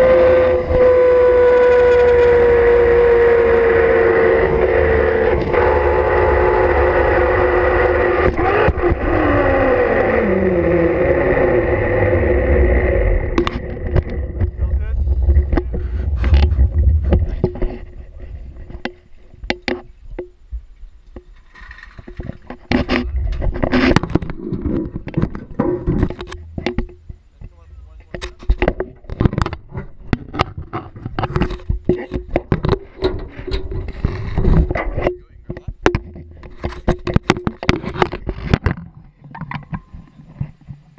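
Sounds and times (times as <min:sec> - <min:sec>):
zipline pulleys whining: 0:00.0 - 0:17.5
wind rumble on microphone: 0:00.0 - 0:40.9
camera rubbing and bumping: 0:13.4 - 0:19.9, 0:21.4 - 0:40.8.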